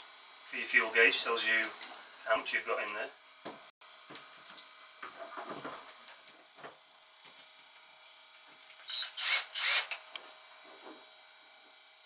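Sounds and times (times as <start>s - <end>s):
cordless drill bursts: 8.8s - 10.0s.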